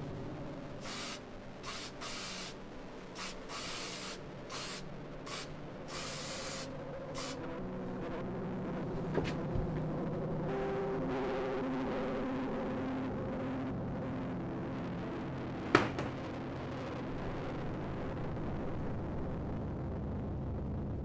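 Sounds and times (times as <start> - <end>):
short bursts of hiss: 0.8 - 2.6, 3.2 - 7.4.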